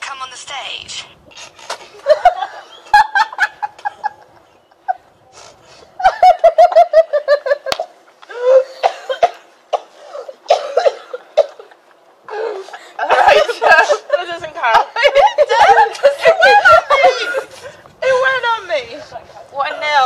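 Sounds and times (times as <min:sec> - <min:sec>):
women laughing: 0:01.8 - 0:09.4, 0:10.4 - 0:18.3.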